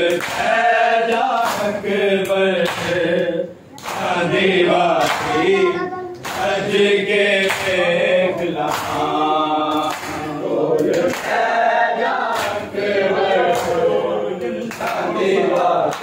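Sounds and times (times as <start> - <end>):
men chanting a lament: 0.0 - 16.0
hands slapping chests: 12.4 - 12.6.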